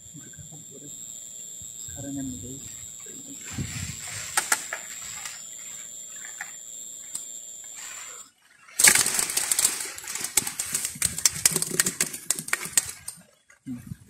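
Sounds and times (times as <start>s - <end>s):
thin high whine: 0.0s - 13.2s
fish flapping in a plastic bucket: 8.8s - 13.3s.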